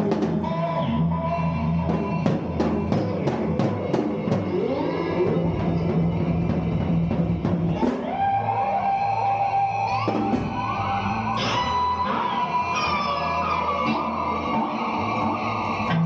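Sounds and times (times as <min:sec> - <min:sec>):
bass guitar: 0:00.0 - 0:16.0
electric guitar bending notes: 0:00.0 - 0:16.0.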